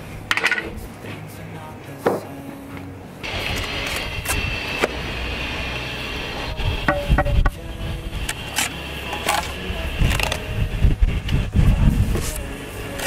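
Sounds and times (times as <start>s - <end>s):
wind buffeting microphone: 6.5s - 8.3s, 9.7s - 12.5s.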